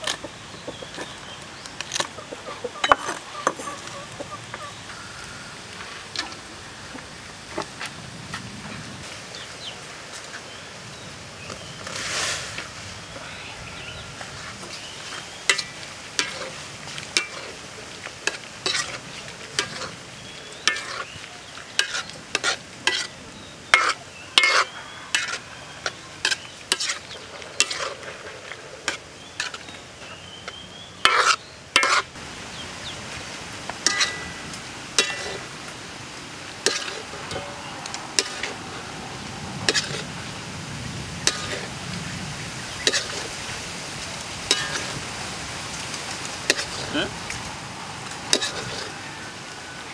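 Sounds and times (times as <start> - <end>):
metal ladle scraping a wok: 15.5 - 17.6, 20.6 - 21.2, 21.8 - 23.2, 23.8 - 29.7, 31.0 - 32.1, 33.8 - 35.5, 36.6 - 38.7, 39.7 - 40.1, 41.2 - 41.7, 42.8 - 43.3, 44.5 - 45.0, 48.3 - 49.0.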